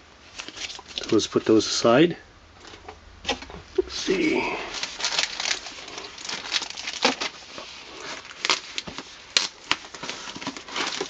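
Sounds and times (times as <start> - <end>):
tissue paper rustling and crinkling: 4.1 - 11.0.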